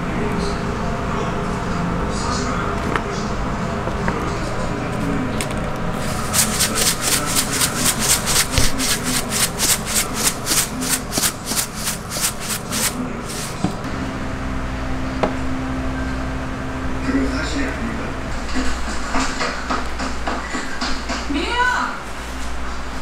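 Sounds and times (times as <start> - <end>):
steady low hum: 0.0 - 20.6
seeds sprinkling with rhythmic rasping: 6.0 - 13.6.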